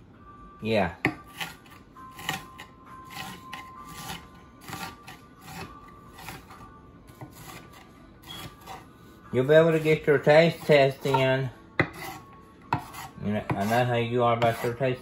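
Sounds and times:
knife chopping on wooden board: 0:01.0 - 0:06.6, 0:07.2 - 0:08.8, 0:10.6 - 0:13.8.

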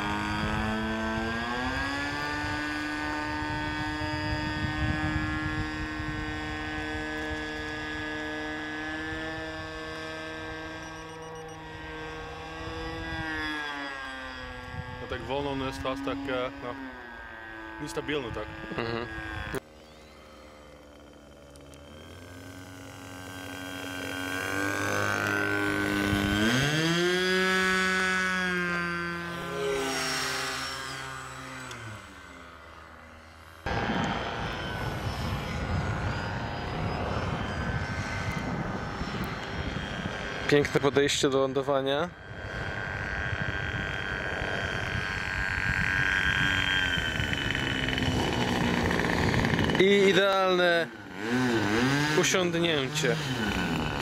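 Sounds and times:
model airplane engine droning: 0:00.0 - 0:54.0
low rumble: 0:33.7 - 0:40.5.

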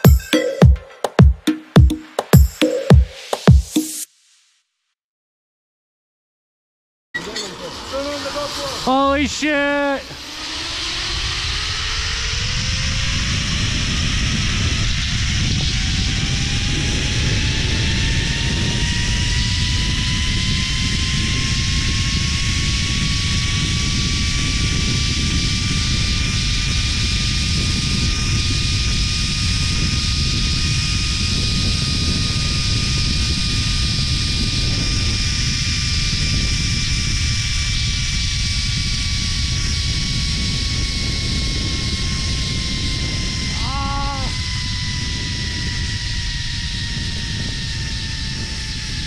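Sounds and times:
zipline pulleys whining on cable: 0:07.2 - 0:49.0
wind rush on microphone: 0:07.9 - 0:49.0.

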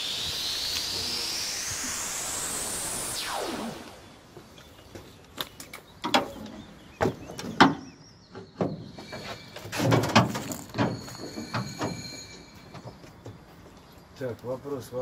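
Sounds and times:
metal clanks at firebox: 0:07.3 - 0:12.1.

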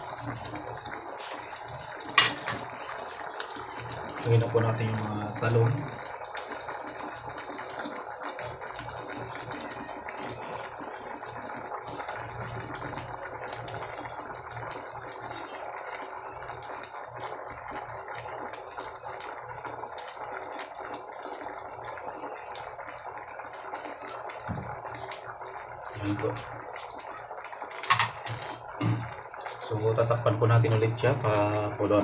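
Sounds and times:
broth boiling in a pot: 0:00.0 - 0:32.0
clicks and knocks in a pot: 0:01.9 - 0:04.1, 0:27.8 - 0:29.2.

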